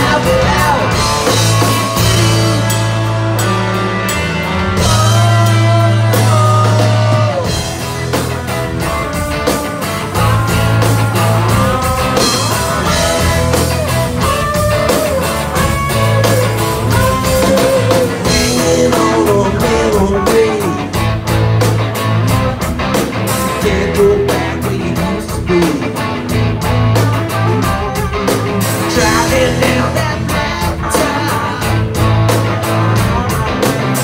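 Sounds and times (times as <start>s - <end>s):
live rock band playing: 0.0s - 34.0s
sliding guitar lead line: 0.0s - 34.0s.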